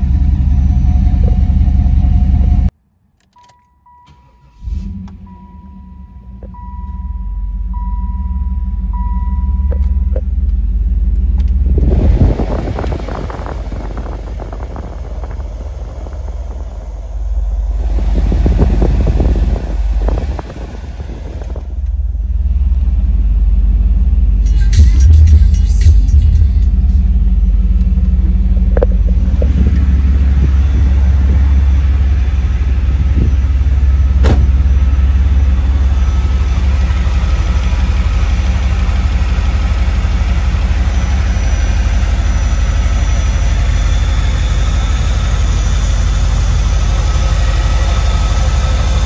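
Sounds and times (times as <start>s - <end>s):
car engine rumbling: 0.0s - 49.0s
dashboard warning chime: 3.3s - 10.3s.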